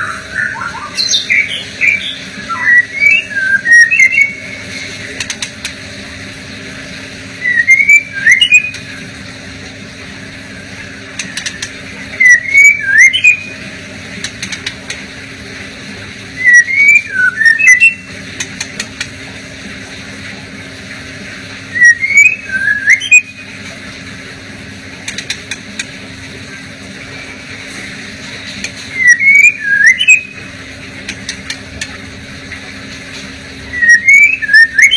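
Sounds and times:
bird singing whistled notes: 0:00.0 - 0:04.5, 0:07.4 - 0:08.8, 0:12.2 - 0:13.6, 0:16.4 - 0:18.1, 0:21.7 - 0:23.4, 0:28.9 - 0:30.4, 0:33.7 - 0:34.9
steady low hum: 0:00.0 - 0:34.9.

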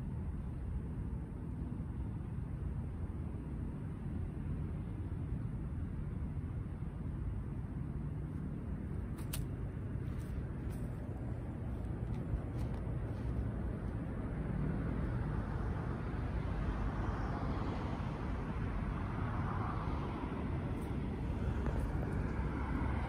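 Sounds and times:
low outdoor background rumble: 0:00.0 - 0:23.0.

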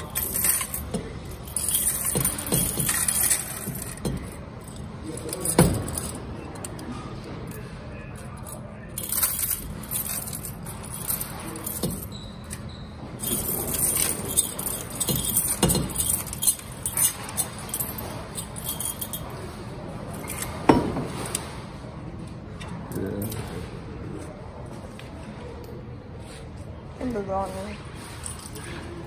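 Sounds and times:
coins clinking: 0:00.0 - 0:07.6, 0:08.2 - 0:21.5.

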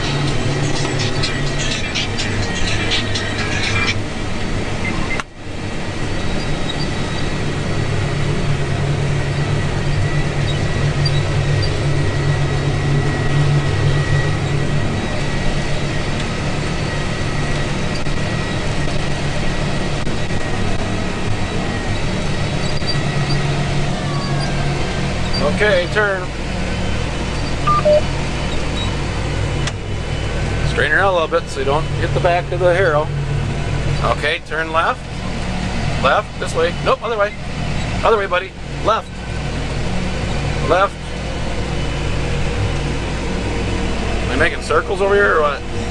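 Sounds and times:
tractor engine droning: 0:00.0 - 0:45.9.

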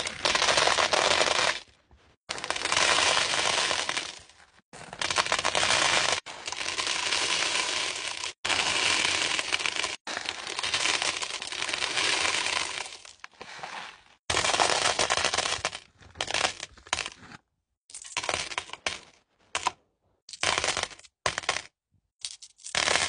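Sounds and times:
small stones clattering into plastic bin: 0:02.4 - 0:19.7.

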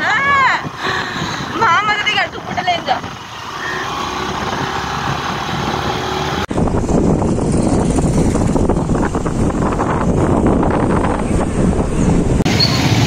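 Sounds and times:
wind rushing on microphone: 0:00.0 - 0:13.0
motor scooter engine running: 0:06.5 - 0:10.1.

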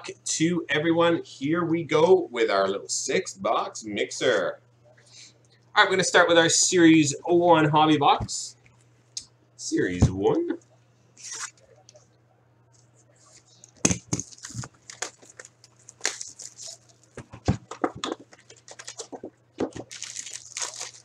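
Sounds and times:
plastic wrap crinkling: 0:12.8 - 0:21.0.

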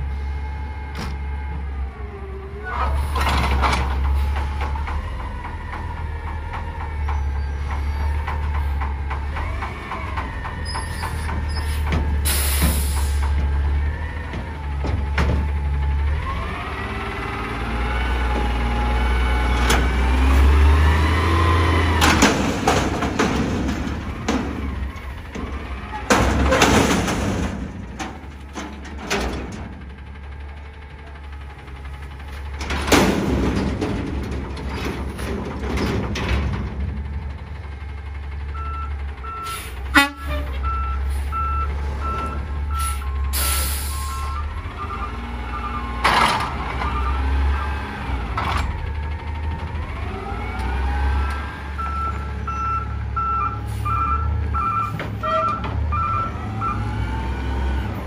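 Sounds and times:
garbage truck diesel engine running: 0:00.0 - 0:58.0
air brake hiss: 0:11.7 - 0:13.3, 0:39.4 - 0:39.8, 0:42.8 - 0:44.2
loud metal clank: 0:22.0 - 0:29.8, 0:32.6 - 0:37.0.

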